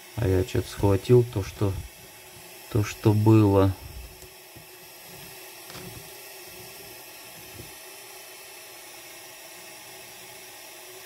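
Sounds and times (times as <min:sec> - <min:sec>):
gas torch flame hissing: 0:00.0 - 0:11.0.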